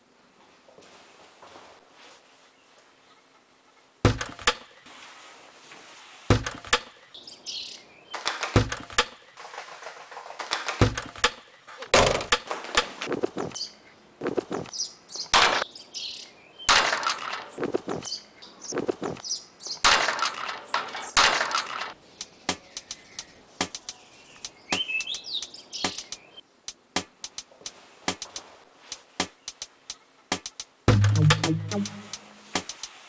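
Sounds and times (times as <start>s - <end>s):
sharp knocks and clicks: 4.0s - 4.8s, 6.3s - 7.0s, 8.2s - 13.6s, 19.8s - 24.0s, 25.8s - 28.4s, 30.3s - 32.9s
birds chirping: 6.3s - 11.8s, 13.0s - 28.4s, 29.2s - 32.9s.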